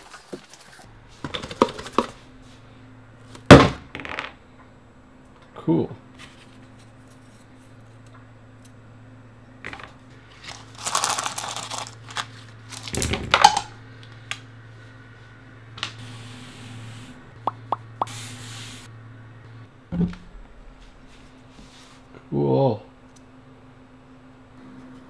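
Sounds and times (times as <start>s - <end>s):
steady low hum: 0.1s - 25.0s
packaging rustling: 10.4s - 13.1s.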